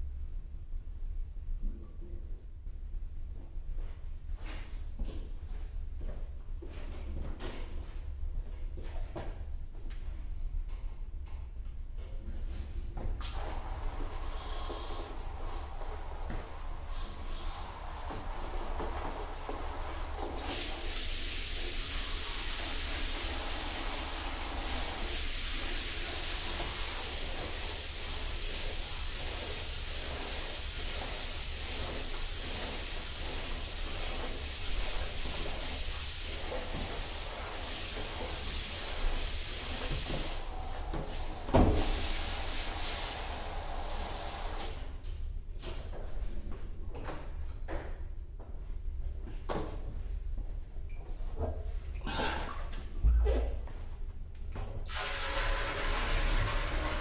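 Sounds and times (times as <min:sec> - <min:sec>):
water spraying into plastic drum: 0:13.2 - 0:44.8, 0:54.9 - 0:57.0.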